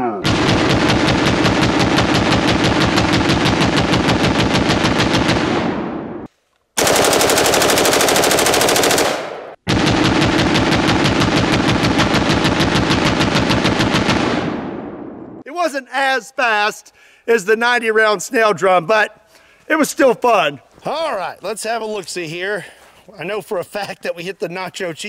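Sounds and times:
rifle full-auto fire: 0.3 - 14.8.

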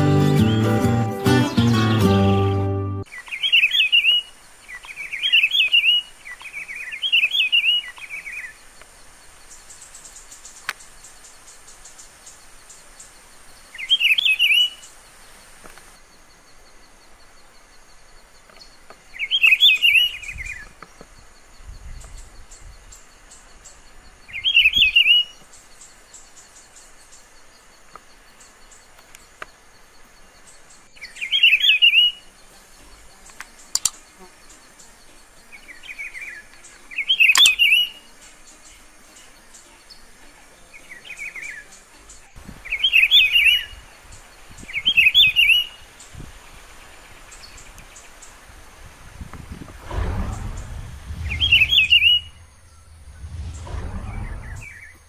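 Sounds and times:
bird singing warbled phrase: 49.9 - 55.0.

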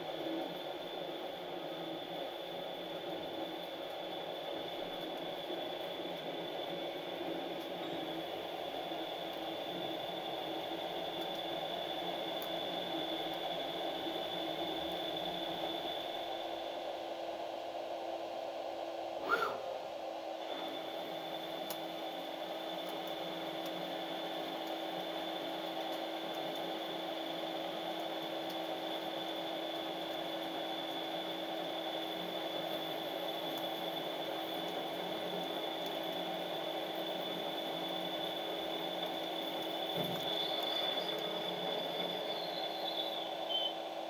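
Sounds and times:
lathe machining hum: 0.0 - 44.0
high thin cutting whine: 19.2 - 19.8.

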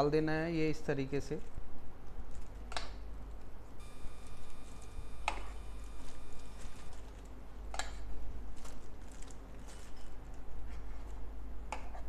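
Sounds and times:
low steady hum: 0.0 - 12.0
faint high steady tone: 3.8 - 7.0.

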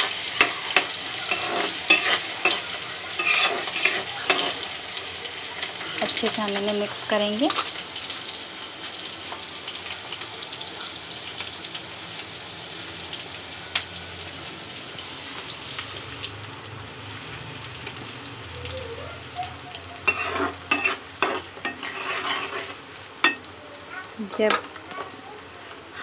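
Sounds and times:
spoon clacking against pan: 0.0 - 4.7, 20.0 - 23.5
onions sizzling in hot oil: 0.0 - 26.0.

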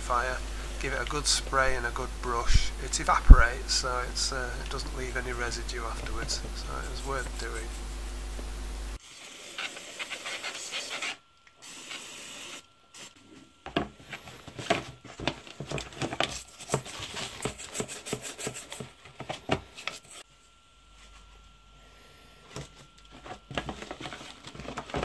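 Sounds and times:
toothbrush scrubbing wet parts: 6.0 - 8.1.

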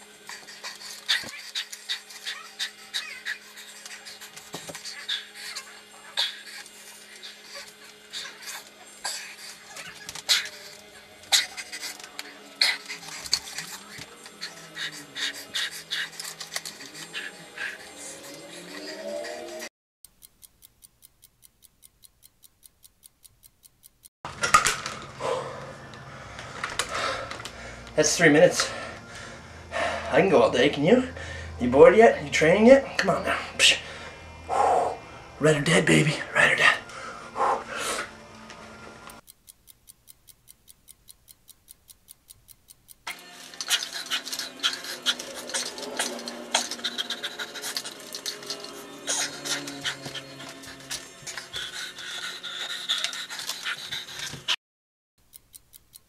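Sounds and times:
music: 10.2 - 19.6, 24.7 - 31.5, 32.9 - 39.2, 43.1 - 52.6
clock ticking: 14.7 - 24.1, 39.0 - 54.6, 55.2 - 56.0.

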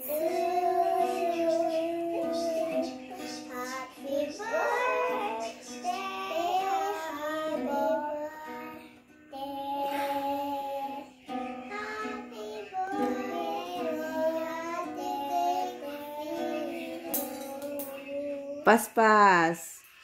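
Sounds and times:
toy ukulele strumming: 0.0 - 7.9, 11.2 - 18.5
girl singing: 0.0 - 18.7.

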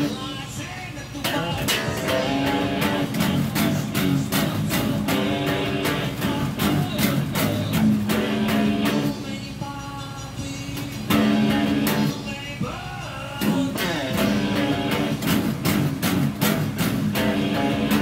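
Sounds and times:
electric bass guitar riff: 0.0 - 0.6, 1.2 - 9.6, 10.8 - 18.0.

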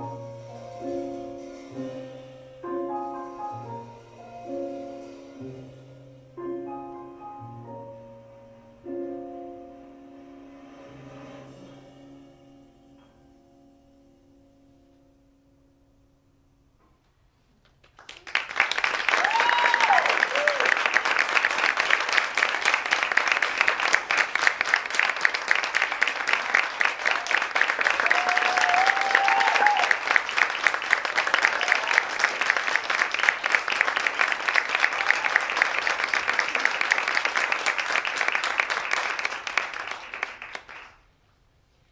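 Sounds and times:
audience applauding: 17.8 - 41.1
person cheering: 19.1 - 20.9, 27.1 - 30.2, 31.2 - 32.4.

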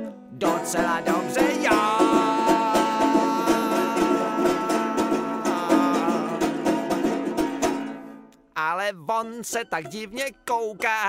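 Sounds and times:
plucked string instrument strumming: 0.0 - 11.0
long held high note: 1.9 - 6.7.

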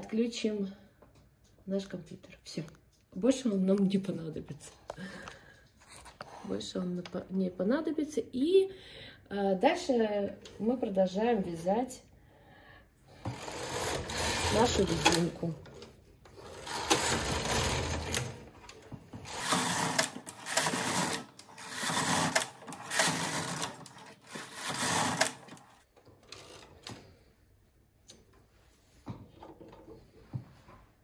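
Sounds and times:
knitting machine carriage sliding: 13.1 - 27.2.

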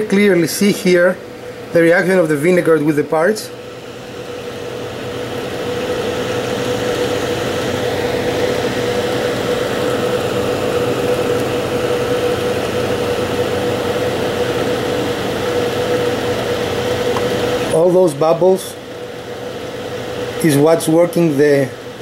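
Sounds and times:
steady machine hum: 0.0 - 22.0.

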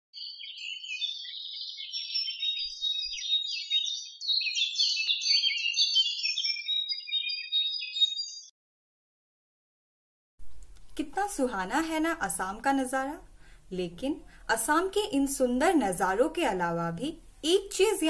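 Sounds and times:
small birds chirping: 0.1 - 8.5.

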